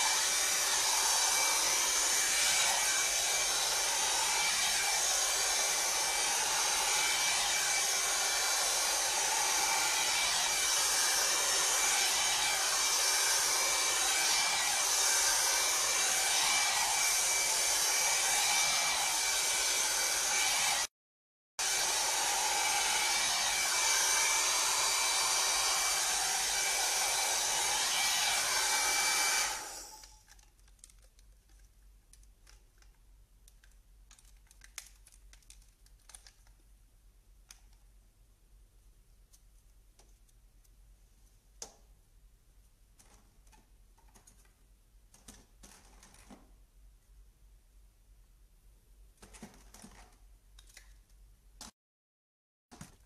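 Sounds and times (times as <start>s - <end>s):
hot-air brush blowing with whine: 0.0s - 20.9s, 21.6s - 30.1s.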